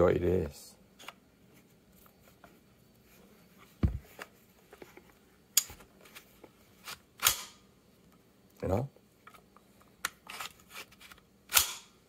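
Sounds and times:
rifle bolt sharp metallic click: 7.2s - 7.6s, 11.5s - 11.9s.

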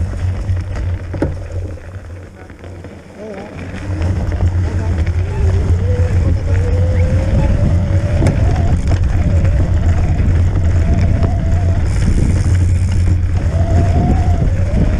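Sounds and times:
tyre rumbling over snow: 0.0s - 14.9s
electric motor whine: 0.3s - 14.9s
wind on microphone: 3.5s - 14.9s.

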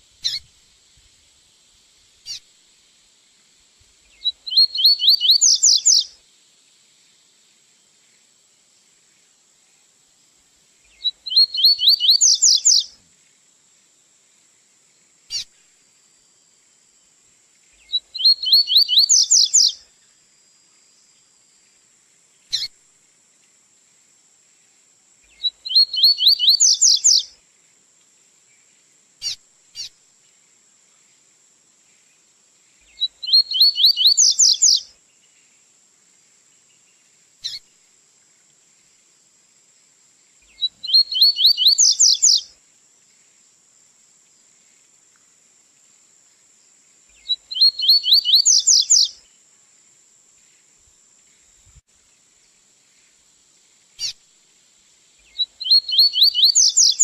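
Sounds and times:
bird song of rising whistles: 4.2s - 6.1s, 11.0s - 12.9s, 17.9s - 19.8s, 25.4s - 27.3s, 33.0s - 34.9s, 40.5s - 42.5s, 47.2s - 49.2s, 55.3s - 57.0s.

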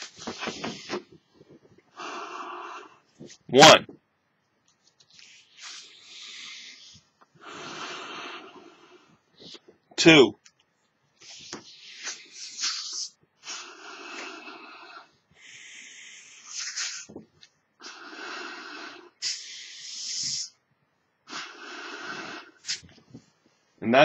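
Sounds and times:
person blowing into balloon: 1.9s - 3.0s, 5.2s - 9.0s, 11.2s - 17.2s, 17.8s - 20.6s, 21.3s - 22.9s
hissing inhale: 1.9s - 3.1s, 5.2s - 9.6s, 11.2s - 17.2s, 17.8s - 20.6s, 21.3s - 23.0s.

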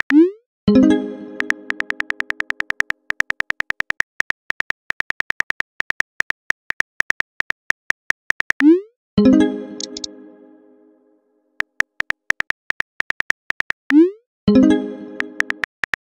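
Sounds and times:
phone keyboard typing clicks: 1.4s - 8.7s, 9.8s - 10.1s, 11.6s - 14.0s, 15.2s - 16.0s.

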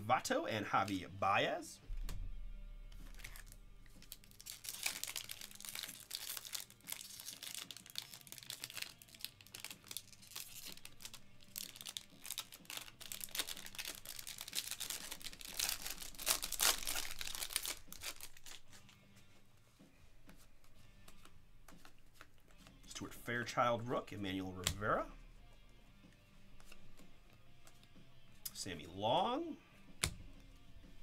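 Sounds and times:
foil wrapper crinkling and tearing: 3.0s - 18.8s.

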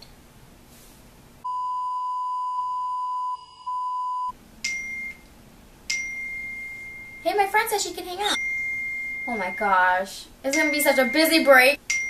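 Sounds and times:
electronic beep tone: 8.3s - 9.8s, 10.5s - 11.3s.

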